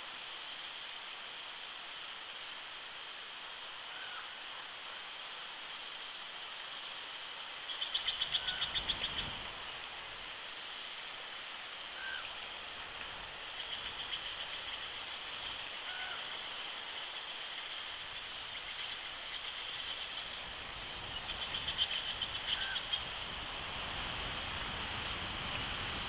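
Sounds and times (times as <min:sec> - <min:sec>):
wind hiss: 0:00.0 - 0:26.0.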